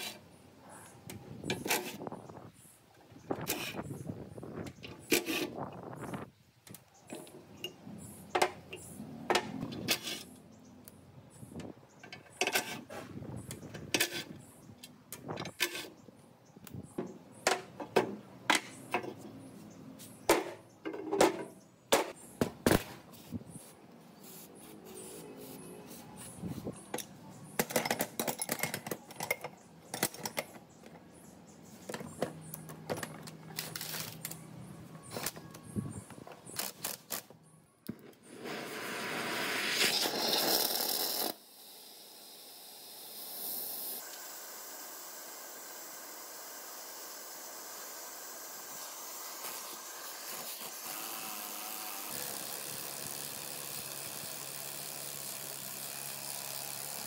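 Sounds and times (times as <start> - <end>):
metal tools clinking and knocking: 26.9 - 31.0
gas torch flame hissing: 38.2 - 44.8.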